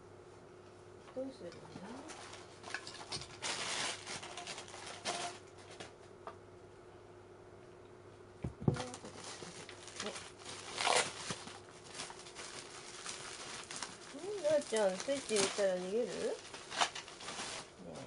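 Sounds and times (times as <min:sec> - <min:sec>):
plastic packaging crinkling: 0:02.1 - 0:05.4, 0:08.8 - 0:18.0.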